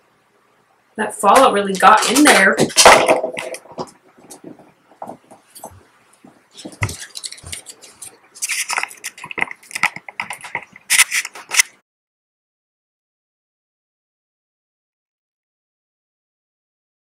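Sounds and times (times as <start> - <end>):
handling clicks knocks and rustles: 1.8 - 11.8.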